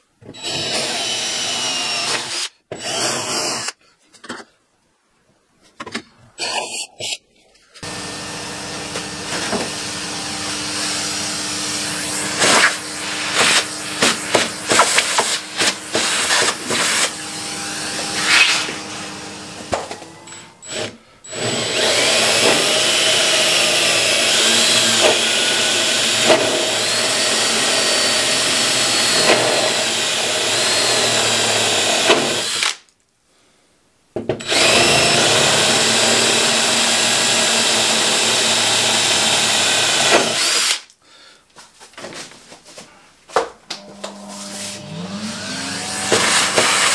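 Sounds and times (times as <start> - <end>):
cordless drill boring metal: 0.4 - 3.8, 7.8 - 32.8, 34.4 - 40.9, 44.8 - 46.9.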